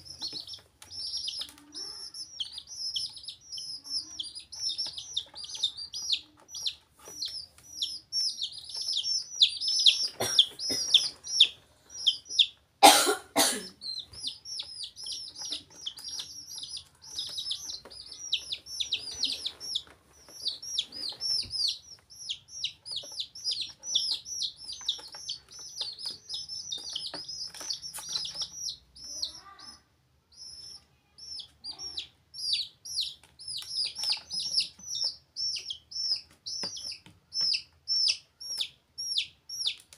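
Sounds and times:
baby chicks peeping: 0.0 - 39.9.

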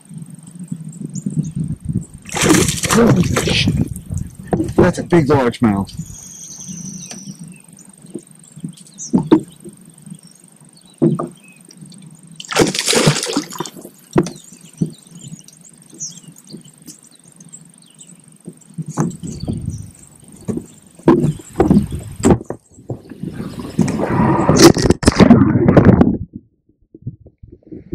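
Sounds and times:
fish splashing at surface: 2.3 - 3.7, 12.4 - 13.9
short knocks and bumps: 2.3 - 5.1, 8.1 - 9.8, 11.0 - 11.4, 18.4 - 23.9.

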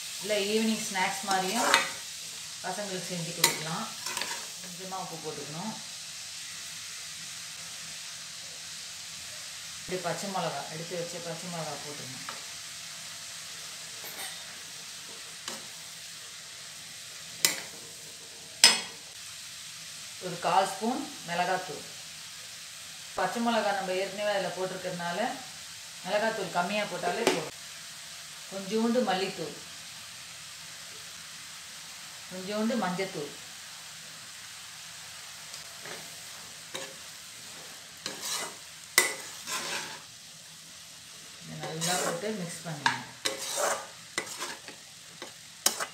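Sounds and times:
vegetables sizzling in a pan: 0.0 - 45.9
metal spatula stirring: 1.1 - 2.0, 3.4 - 4.6, 35.8 - 40.1, 41.6 - 45.9.

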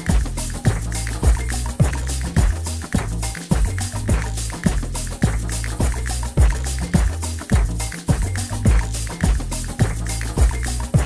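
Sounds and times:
bass line: 0.0 - 11.0
hi-hat ticks: 0.0 - 11.0
kick drum: 0.0 - 11.0.

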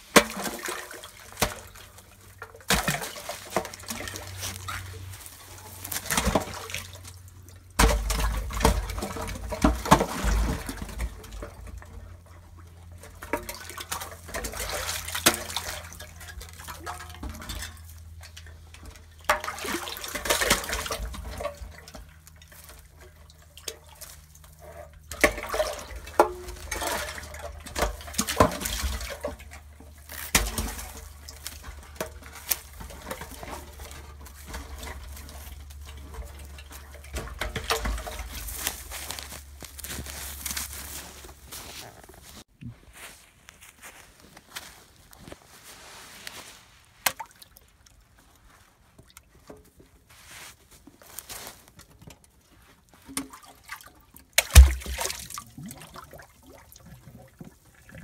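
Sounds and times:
magnet splashing in water: 54.4 - 55.8.

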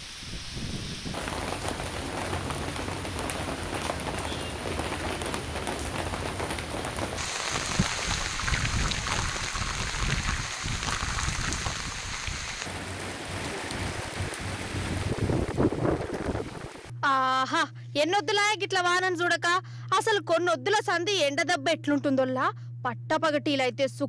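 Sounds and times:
heavy rain on pavement: 0.3 - 16.9.

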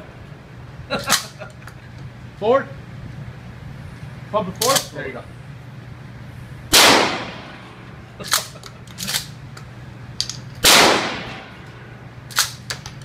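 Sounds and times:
shotgun blasts: 6.7 - 7.7, 10.6 - 11.6
shotgun pump racking clacks: 8.3 - 10.4.

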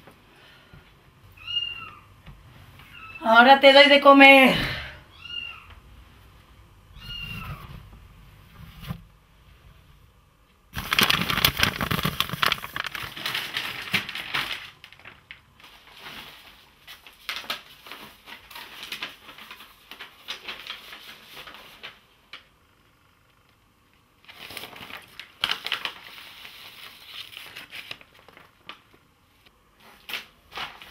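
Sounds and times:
paper crinkling and rustling: 10.8 - 22.5, 24.2 - 30.9.

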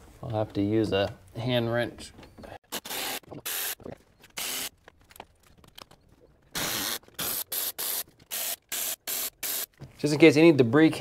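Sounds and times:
electric ratchet bursts: 2.7 - 3.8, 4.4 - 4.7, 6.6 - 9.7.

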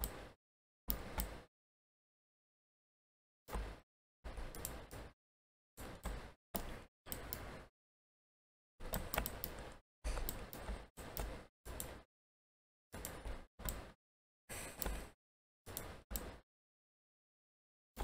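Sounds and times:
mouse and keyboard clicks: 0.9 - 1.5, 4.5 - 5.1, 5.8 - 7.7, 8.8 - 12.0, 13.0 - 14.0, 15.7 - 16.4.

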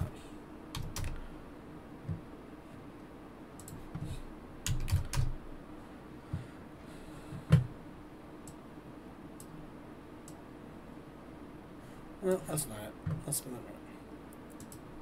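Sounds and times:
computer keyboard typing: 0.7 - 1.2, 4.6 - 5.4.

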